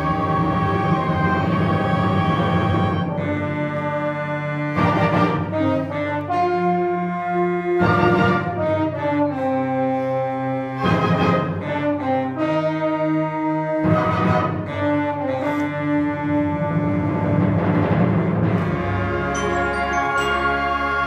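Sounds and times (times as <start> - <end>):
wind band playing chords: 0.0 - 21.0.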